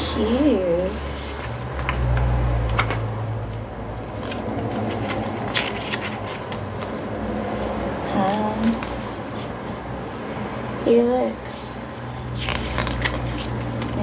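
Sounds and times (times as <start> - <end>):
paper pages rustling: 0.5 - 9.7, 12.3 - 14.0.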